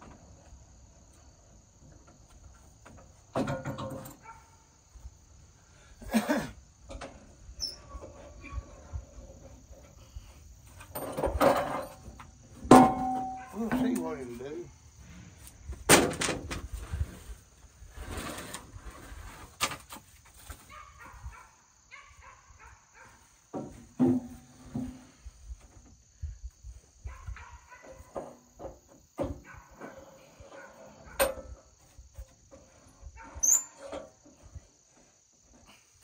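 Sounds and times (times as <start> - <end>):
wood knocking on metal: 23.6 - 25.0.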